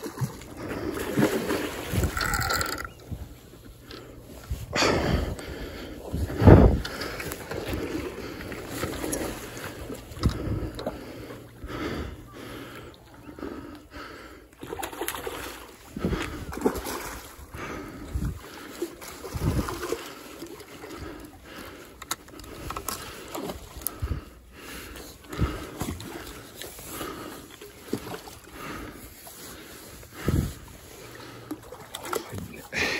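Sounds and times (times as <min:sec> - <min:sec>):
sloshing water: 0:00.0 - 0:32.9
person breathing hard: 0:03.8 - 0:14.8, 0:17.4 - 0:18.9, 0:19.8 - 0:31.8, 0:32.6 - 0:32.9
wind buffeting microphone: 0:04.4 - 0:07.9.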